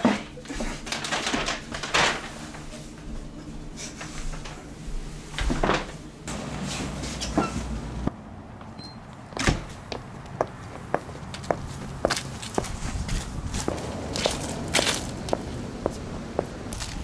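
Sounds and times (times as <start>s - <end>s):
footsteps on steps: 9.4s - 17.0s
people moving about: 9.4s - 17.0s.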